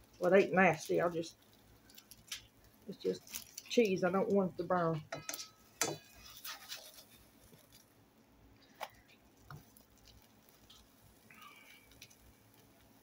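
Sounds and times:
spatula scraping frying pan: 5.2s - 7.8s.

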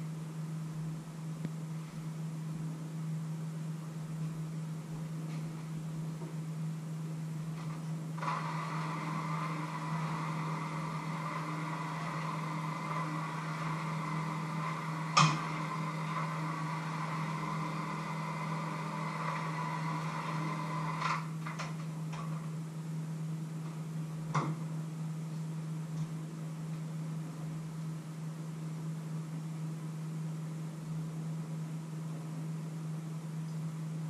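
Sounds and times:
low hum: 0.0s - 34.0s
electric hand mixer running: 8.2s - 21.4s.

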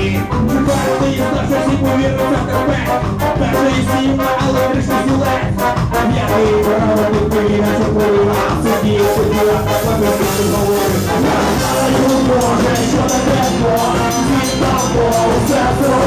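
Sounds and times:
live ska band playing: 0.0s - 16.0s
trumpet and trombone: 0.0s - 16.0s.

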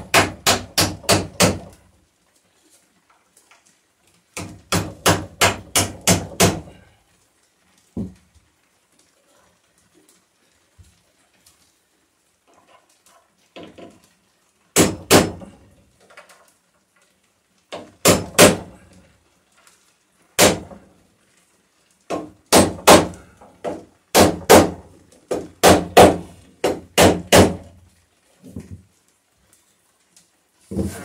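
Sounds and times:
hammer striking nails into wood: 0.0s - 1.8s, 4.4s - 6.8s, 14.8s - 15.5s, 17.7s - 18.7s, 20.4s - 20.8s, 22.1s - 27.7s.

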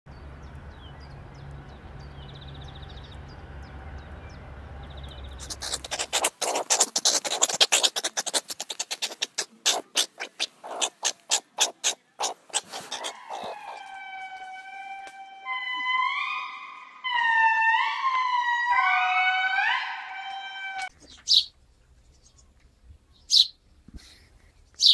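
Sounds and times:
sharp clicking animal calls: 5.4s - 14.0s.

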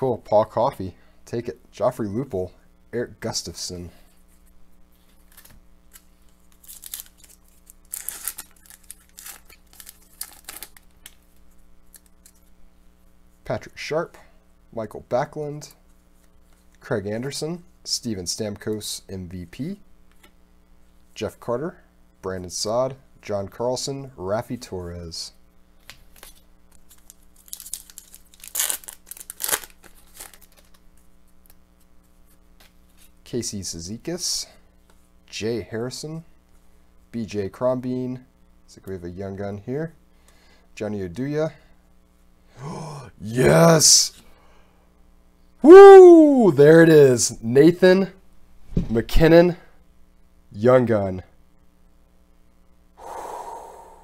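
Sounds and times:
foil wrapper crinkling: 5.2s - 11.2s, 26.2s - 30.9s
foil wrapper tearing: 5.2s - 11.2s, 26.2s - 30.8s.

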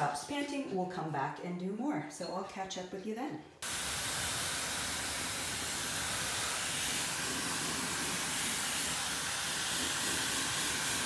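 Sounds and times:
blow dryer running: 3.6s - 11.0s.

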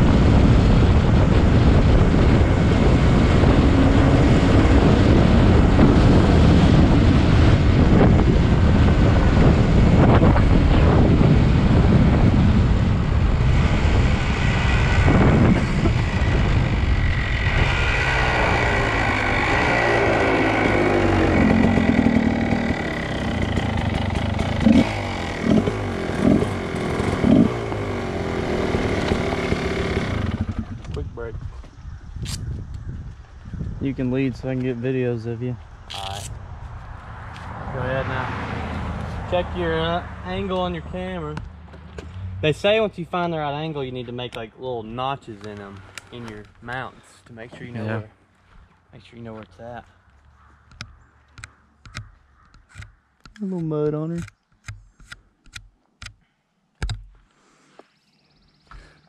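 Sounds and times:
dirt bike engine running: 0.0s - 31.9s
wind rushing over microphone: 0.0s - 42.9s
engine revving bursts: 11.7s - 30.8s.

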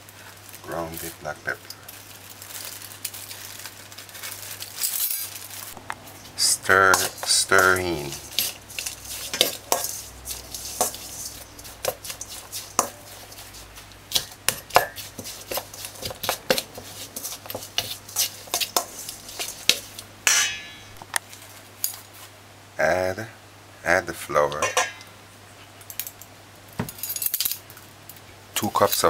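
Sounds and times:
metal spoon scraping steel bowl: 6.3s - 21.0s.

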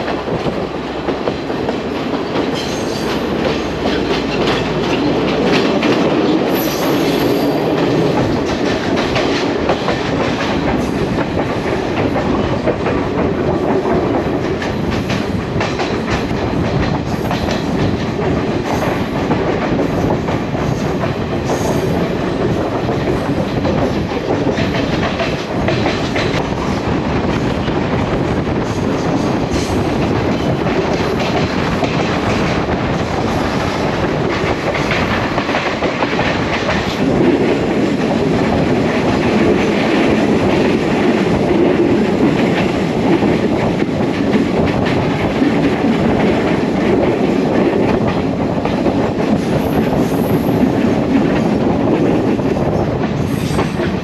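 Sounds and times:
train running noise: 0.0s - 54.0s.

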